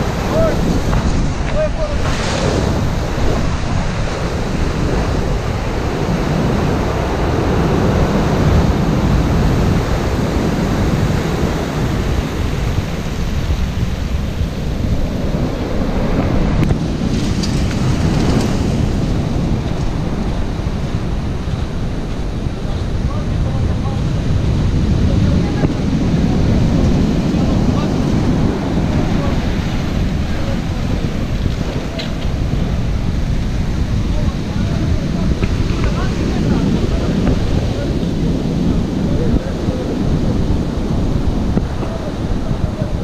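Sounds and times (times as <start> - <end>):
storm surf breaking on shore: 0.0 - 43.0
wind buffeting microphone: 0.0 - 43.0.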